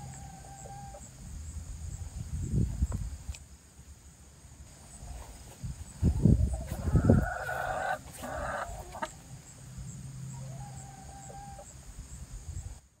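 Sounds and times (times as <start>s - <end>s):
hens clucking: 6.0s - 9.4s, 10.3s - 11.7s.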